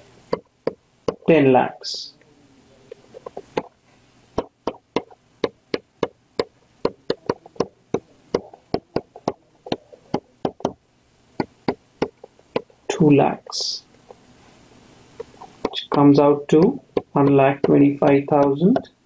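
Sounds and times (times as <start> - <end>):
stylus tapping on tablet: 0.3 - 1.2, 3.2 - 3.7, 4.4 - 10.8, 11.4 - 12.7, 15.2 - 19.0.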